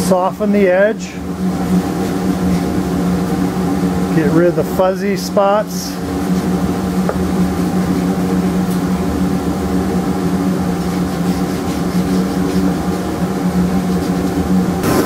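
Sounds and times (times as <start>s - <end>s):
workshop machine droning: 0.0s - 15.0s
sandpaper sanding wood: 10.6s - 13.1s.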